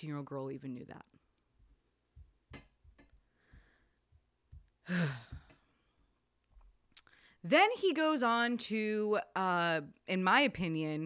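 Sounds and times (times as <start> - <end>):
soft breath: 3.2 - 4.2
woman sighing: 4.8 - 5.8.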